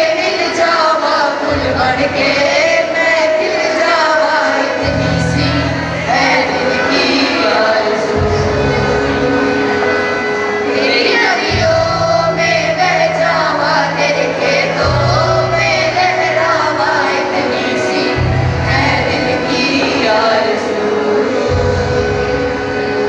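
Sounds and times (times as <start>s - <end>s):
keyboard chords: 0.0s - 23.0s
person singing: 0.0s - 23.0s
deep bass notes: 11.4s - 17.1s, 18.1s - 20.4s.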